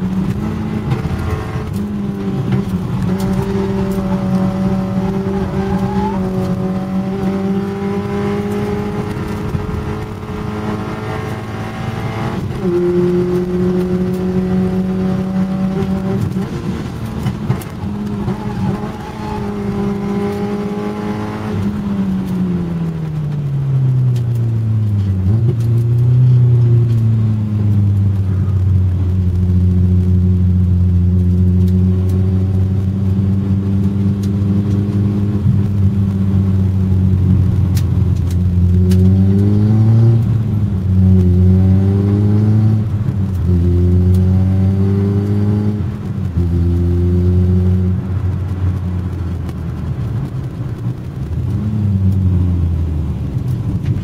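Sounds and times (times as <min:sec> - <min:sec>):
race car engine revving: 0:00.0 - 0:23.0, 0:24.8 - 0:54.0.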